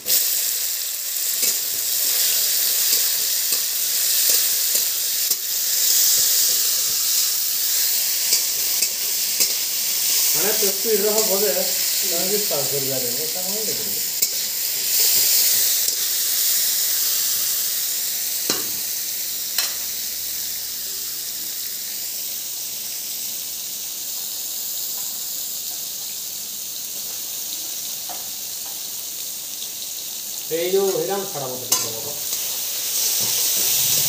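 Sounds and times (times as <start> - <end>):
vegetables sizzling in hot oil: 0.0 - 34.0.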